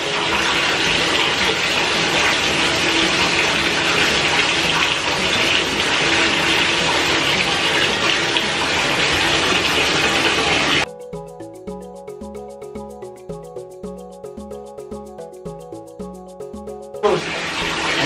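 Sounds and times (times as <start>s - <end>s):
water pouring into bathtub: 0.0s - 10.9s, 17.0s - 18.0s.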